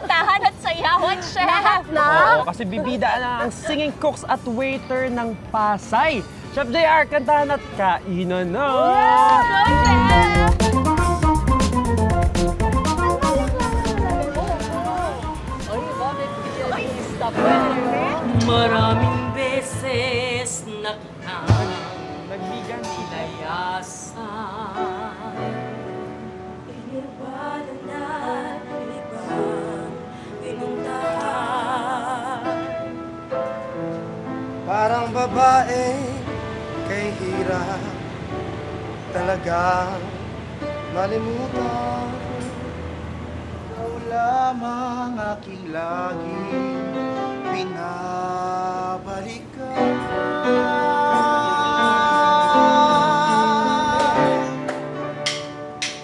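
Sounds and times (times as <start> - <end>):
instrumental accompaniment: 4.4 - 24.1, 49.7 - 56.0
woman singing with vibrato: 9.3 - 10.8, 13.1 - 22.2, 23.0 - 25.9, 26.6 - 32.7.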